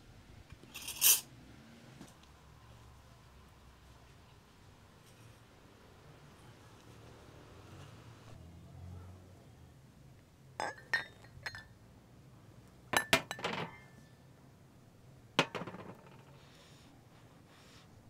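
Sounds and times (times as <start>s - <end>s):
ceramic dishes clinking: 10.6s - 11.7s, 13.0s - 14.0s.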